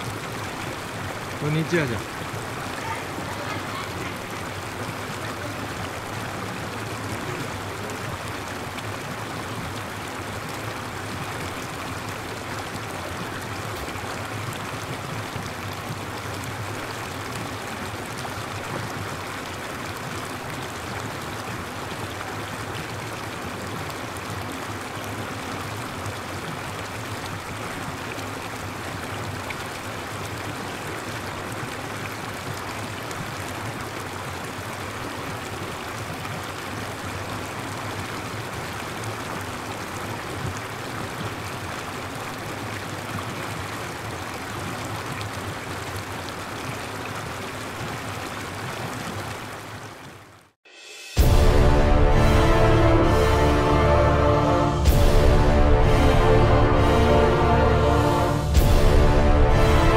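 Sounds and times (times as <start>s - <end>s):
steady rushing noise: 50.7s - 59.9s.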